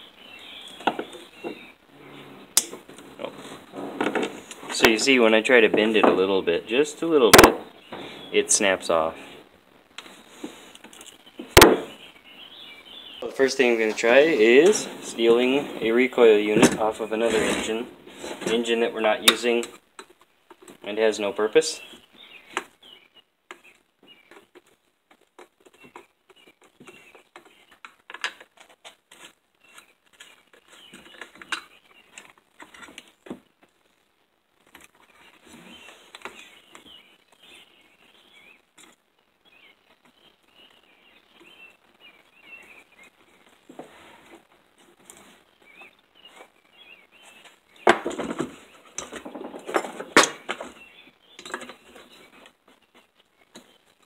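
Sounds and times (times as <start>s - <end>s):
sharp knocks: 7.3s - 8.1s, 11.6s - 11.9s.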